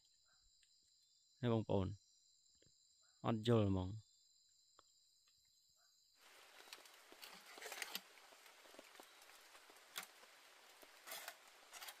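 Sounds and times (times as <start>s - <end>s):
night forest hiss: 0.0s - 12.0s
camping pot and utensils clinking: 6.2s - 12.0s.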